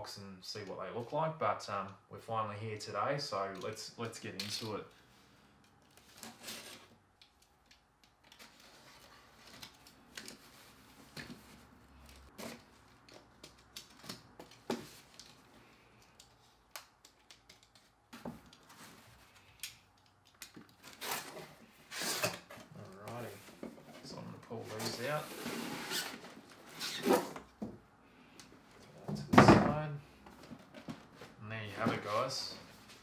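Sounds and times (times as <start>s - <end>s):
cardboard rustling: 20.6s - 27.7s.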